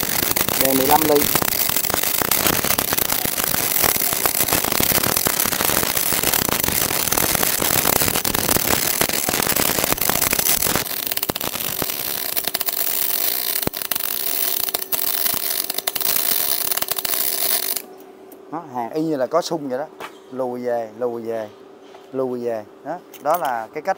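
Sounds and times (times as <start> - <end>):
welding arc crackling: 0.0 - 17.9.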